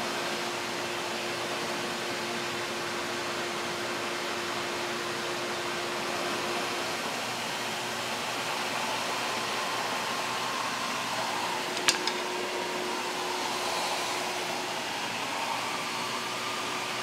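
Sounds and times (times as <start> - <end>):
shop vac running: 0.0 - 17.0.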